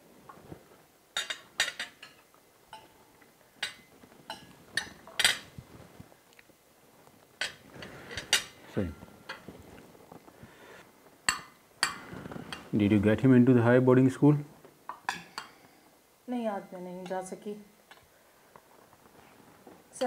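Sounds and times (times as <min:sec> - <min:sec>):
spoons clinking on plates: 0:01.2 - 0:03.0, 0:03.6 - 0:05.5, 0:07.4 - 0:09.5, 0:11.2 - 0:12.7, 0:14.9 - 0:15.7.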